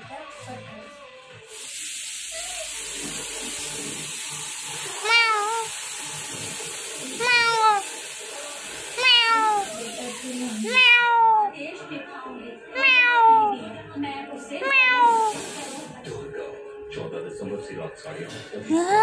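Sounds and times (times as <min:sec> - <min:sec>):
cat meowing: 0:04.8 - 0:05.8, 0:07.0 - 0:08.0, 0:09.0 - 0:11.6, 0:12.7 - 0:13.6, 0:14.6 - 0:15.4.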